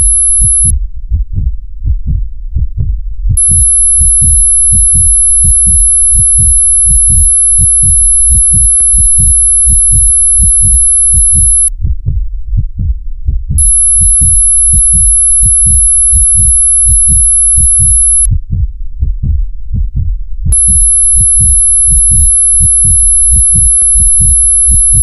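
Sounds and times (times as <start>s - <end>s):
faint ticking: 0.0s - 0.7s, 3.4s - 11.7s, 13.6s - 18.3s, 20.5s - 25.0s
thin high ringing tone: 0.0s - 0.7s, 3.4s - 11.7s, 13.6s - 18.3s, 20.6s - 25.0s
heartbeat thumps: 0.0s - 25.0s
steady low hum: 0.0s - 25.0s.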